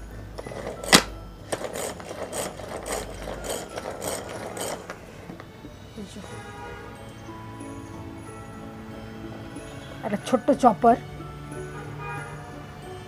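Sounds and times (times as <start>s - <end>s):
gears whirring and ratcheting: 0.4s - 5.4s
pull cord being pulled: 0.4s - 5.4s.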